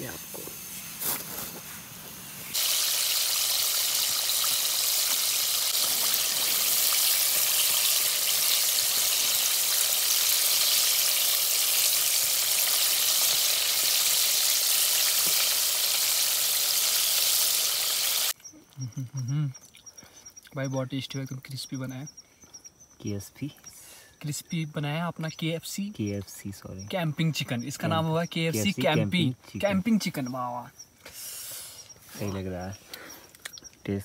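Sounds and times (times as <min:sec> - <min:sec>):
chicken deep-frying in oil: 0:01.9 - 0:18.4.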